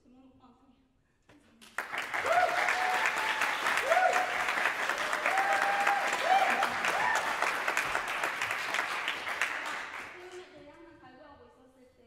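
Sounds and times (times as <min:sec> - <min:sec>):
audience applauding: 0:01.6 - 0:10.5.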